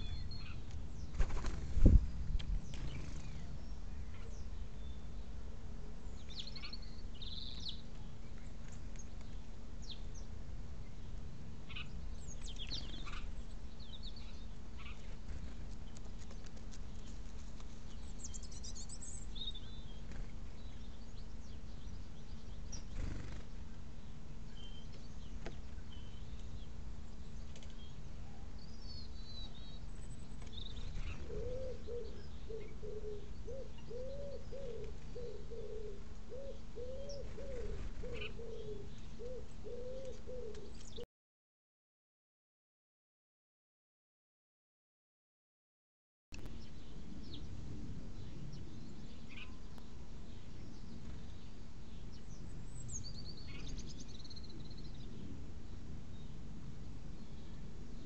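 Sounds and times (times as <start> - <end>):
songbirds chirping: 0.0 - 41.0, 46.4 - 58.0
pigeon cooing: 31.2 - 40.7.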